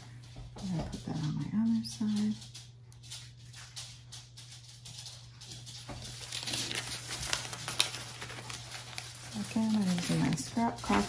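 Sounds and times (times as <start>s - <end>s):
paper rustling and scuffing: 5.4s - 11.0s.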